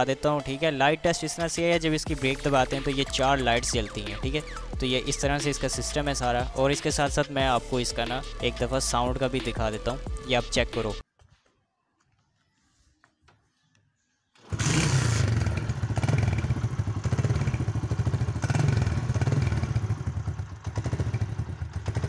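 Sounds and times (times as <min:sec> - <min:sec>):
motorcycle engine running loudly: 0:14.4 - 0:22.0.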